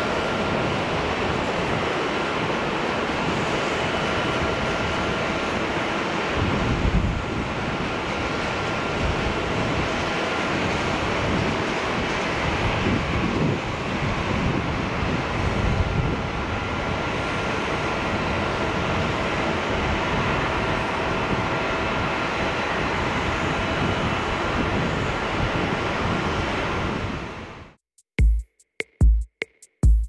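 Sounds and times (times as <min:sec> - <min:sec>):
jet engines at takeoff thrust: 0:00.0 - 0:27.8
electronic music with drum beat: 0:28.0 - 0:30.0.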